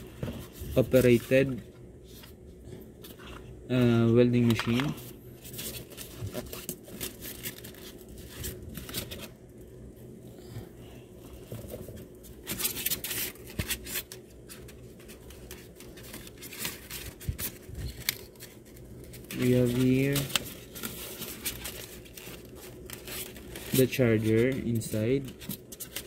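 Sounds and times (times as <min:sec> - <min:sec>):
plastic wrapping crinkling: 0:04.4 - 0:09.6, 0:11.4 - 0:26.0.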